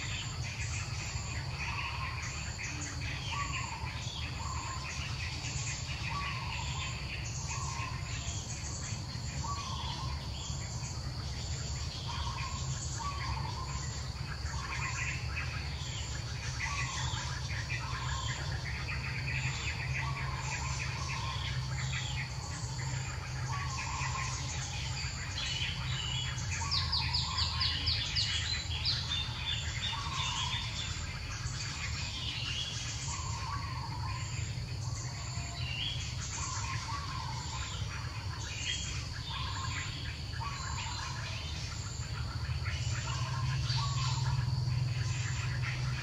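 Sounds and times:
birds chirping and twittering: 0.0s - 46.0s
high-pitched insect drone: 0.0s - 46.0s
low steady rumble: 0.0s - 46.0s.

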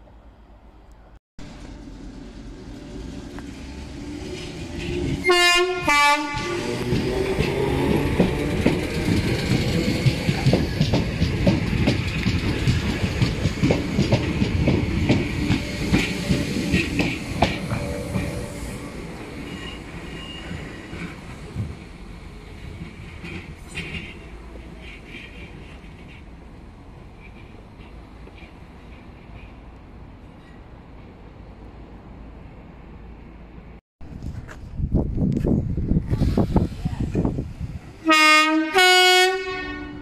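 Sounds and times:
train wheel clatter: 1.4s - 22.0s, 22.6s - 26.4s
train horn blasts: 5.2s - 6.9s, 38.0s - 40.0s.

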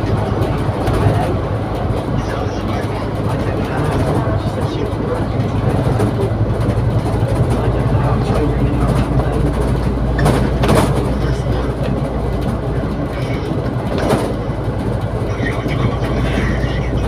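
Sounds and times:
bus engine hum: 0.0s - 17.0s
road and body noise: 0.0s - 17.0s
sharp rattling knocks: 2.8s - 12.8s.

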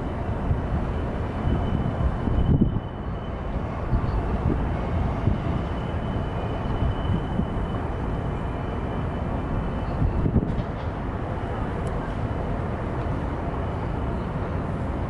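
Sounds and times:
wind buffeting microphone: 0.0s - 8.5s, 9.3s - 12.1s.

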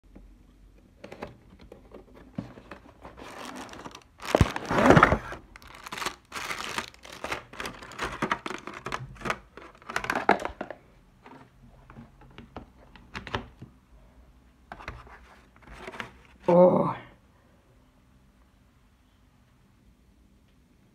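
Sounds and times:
cardboard and plastic packaging rustling: 1.0s - 13.6s, 14.7s - 16.5s.

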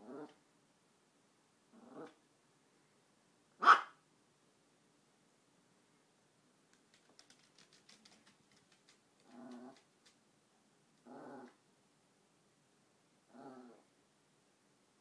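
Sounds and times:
dog growling: 0.0s - 0.4s, 1.7s - 2.2s, 9.2s - 9.9s, 11.0s - 11.6s, 13.3s - 13.8s
dog claws ticking on floor: 6.7s - 10.2s.

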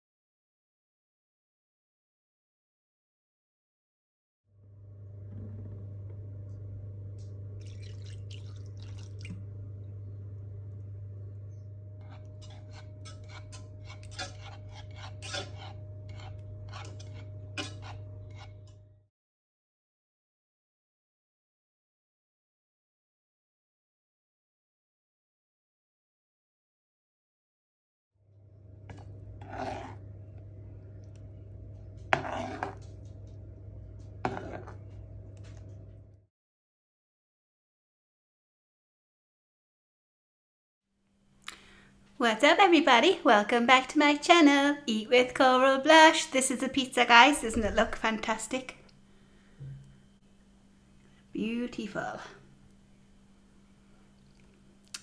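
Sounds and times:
steady low hum: 4.6s - 19.0s, 28.3s - 36.2s
whisk scraping a saucepan: 12.0s - 18.8s, 28.9s - 30.1s, 32.0s - 33.2s, 34.2s - 34.9s.

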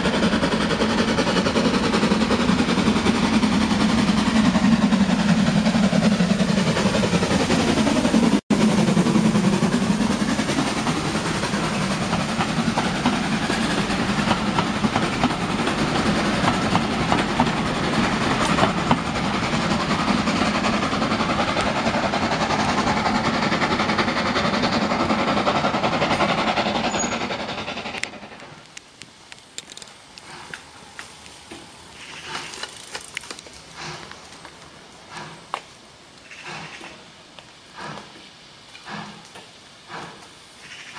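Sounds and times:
steam locomotive passing: 0.0s - 40.9s
train coaches clattering over rail joints: 37.7s - 40.9s.

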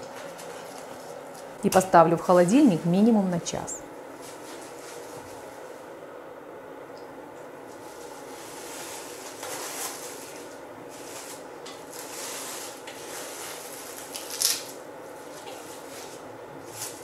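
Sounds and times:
cling film rustling and crinkling: 0.0s - 1.7s, 4.1s - 5.9s, 7.6s - 17.0s.

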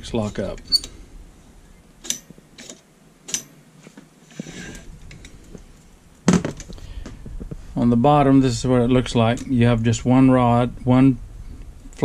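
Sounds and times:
scraping rustle on bench: 3.8s - 5.5s.

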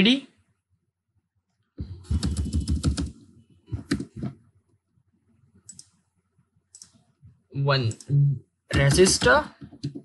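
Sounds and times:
computer keyboard typing: 1.8s - 4.4s, 5.6s - 6.0s, 6.7s - 7.0s, 8.7s - 10.0s.

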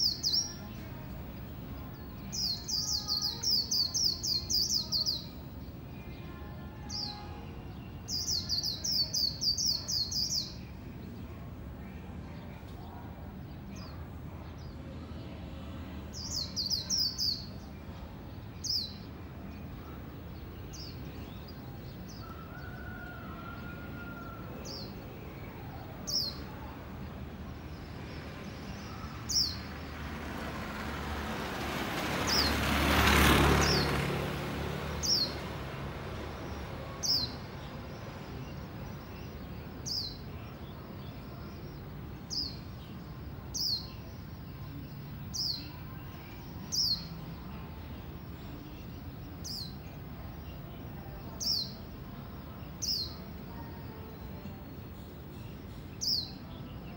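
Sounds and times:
passing vehicle: 26.8s - 40.0s.

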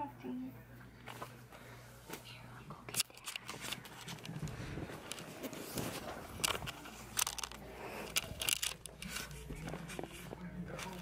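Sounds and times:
camera handling rustling and thumps: 2.9s - 9.1s.

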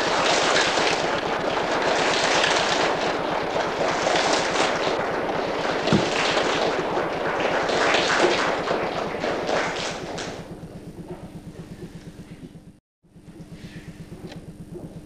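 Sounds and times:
audience applauding: 0.0s - 10.5s
low steady hum: 0.0s - 15.0s.

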